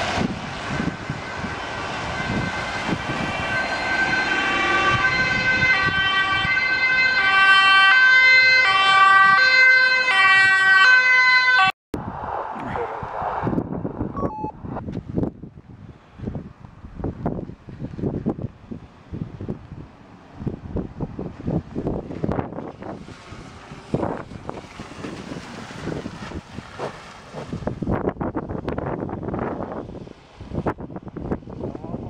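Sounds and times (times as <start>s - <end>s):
ambulance two-tone siren: 0.9s - 11.8s, 14.2s - 14.6s.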